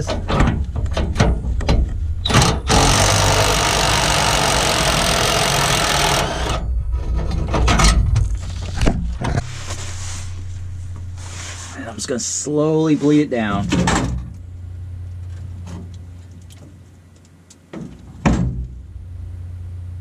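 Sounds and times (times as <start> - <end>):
impact wrench hammering: 2.3 - 6.6.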